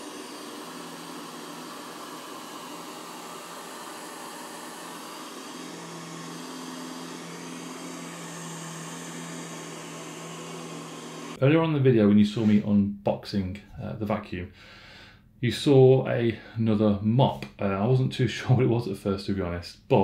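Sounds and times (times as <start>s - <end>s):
robot vacuum running: 0.0s - 11.4s.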